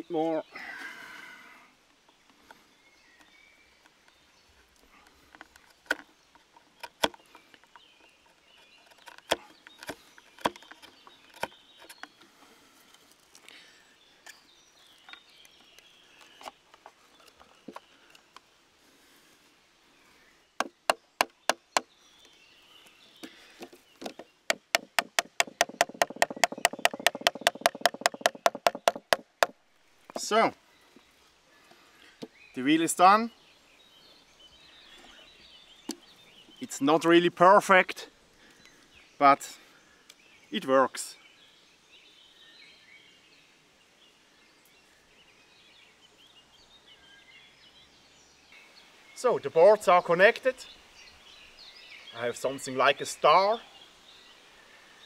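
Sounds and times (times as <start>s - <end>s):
wood knocking on wooden boards: 20.6s - 21.9s, 23.2s - 30.3s.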